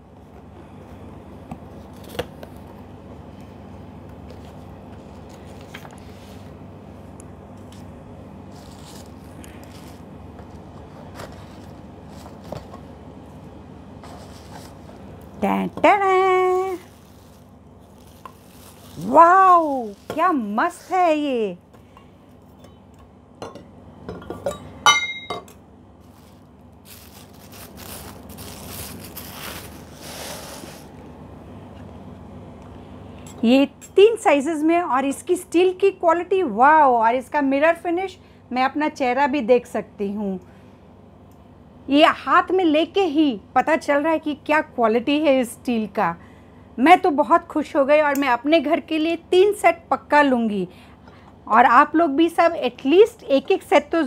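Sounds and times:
cardboard flaps rustling and scraping: 8.5 - 12.8, 14.0 - 15.1, 26.0 - 30.9.

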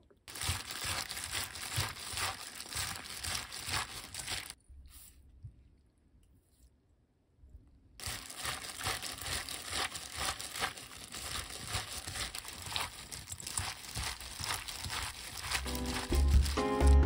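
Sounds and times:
wet squishes of seaweed: 0.2 - 4.6, 8.0 - 17.0
plastic gloves crinkling: 0.3 - 4.6, 8.0 - 17.0.

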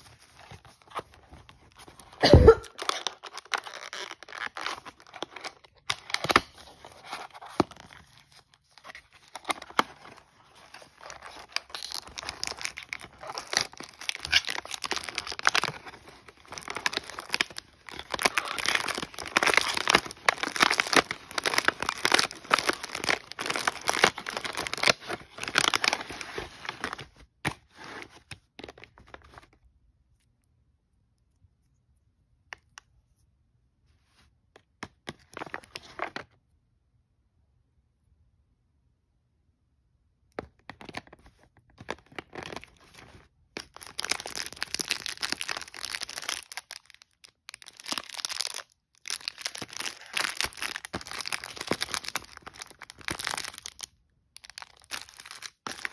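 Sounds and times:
packaging tearing and crinkling: 0.0 - 29.5, 41.8 - 55.9.

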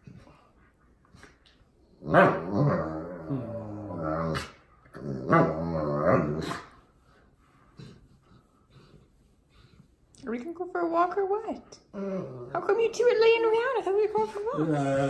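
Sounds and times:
dog grumbling vocalisations: 2.0 - 6.7, 11.9 - 12.7.

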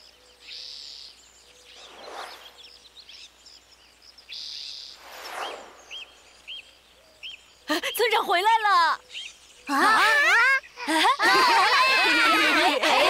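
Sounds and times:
small birds chirping: 0.0 - 13.0
whooshing swishes: 1.8 - 2.7, 5.0 - 6.3.

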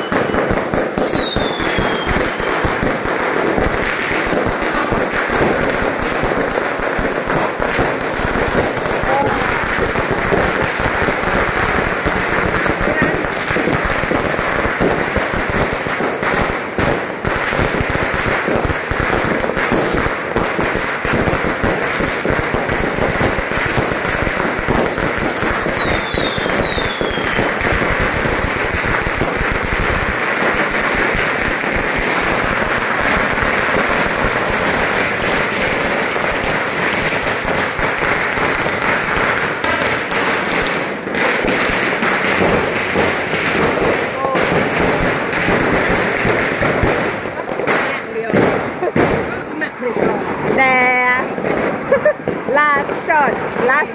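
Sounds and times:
falling firework whistles: 0.0 - 2.6, 24.7 - 27.5
fireworks crackling: 0.0 - 53.9.

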